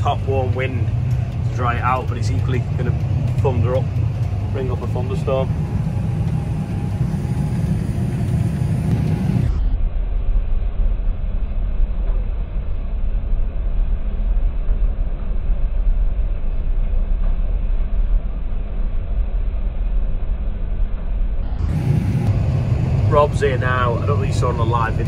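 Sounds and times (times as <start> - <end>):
tractor engine rumbling: 0.0 - 9.7, 21.4 - 25.0.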